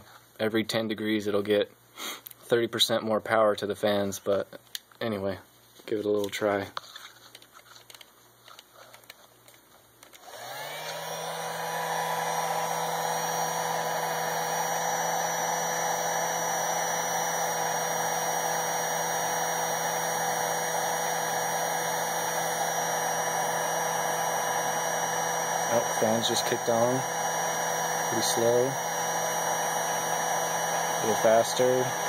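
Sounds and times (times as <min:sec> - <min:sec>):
electric blower motor running: 0:10.2 - 0:32.0.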